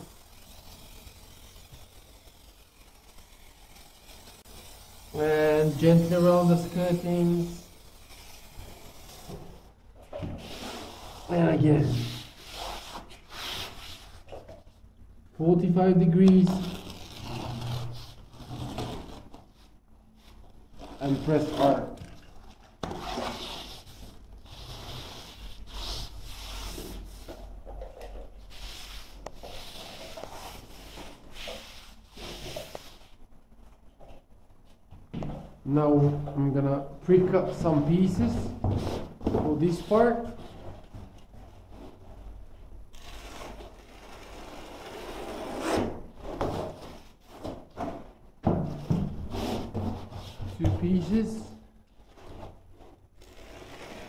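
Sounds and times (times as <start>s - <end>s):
foam sheet scraping on concrete: 0.0s - 9.5s, 52.1s - 54.0s
hands rubbing foam underlay: 0.0s - 9.5s, 23.0s - 27.4s, 28.4s - 33.2s.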